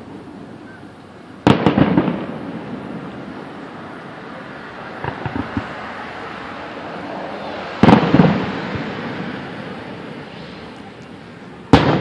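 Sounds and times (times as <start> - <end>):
firework bang: 1.4 - 3.4, 5.0 - 5.9, 7.7 - 10.8, 11.7 - 12.0
firework shell booming: 1.4 - 3.5, 5.0 - 5.9, 7.8 - 10.7, 11.7 - 12.0.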